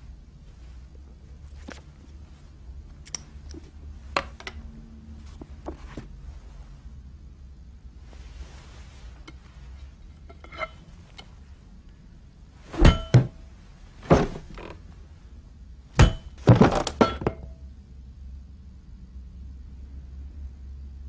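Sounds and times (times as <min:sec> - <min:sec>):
baseball bat hitting: 0:16.0 - 0:17.3.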